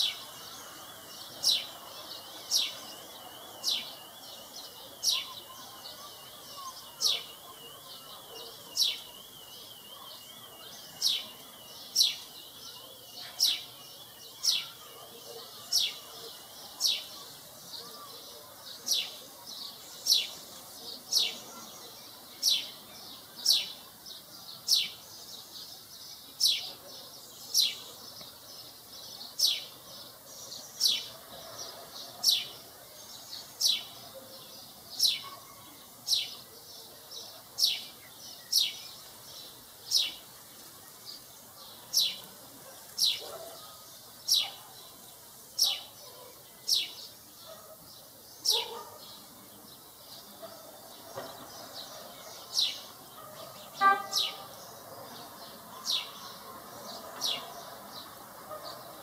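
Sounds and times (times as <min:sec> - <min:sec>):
young sparrow chirping: 0:37.6 - 0:40.3, 0:52.4 - 0:54.6.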